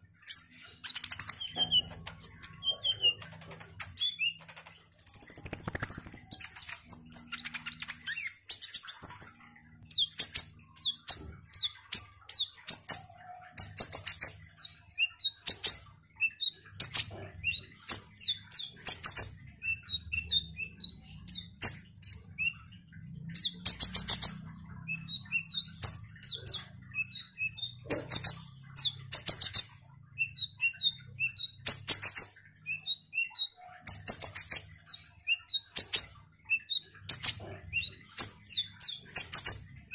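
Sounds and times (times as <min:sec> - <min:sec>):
bird chirping and trilling: 0:00.0 - 0:39.9.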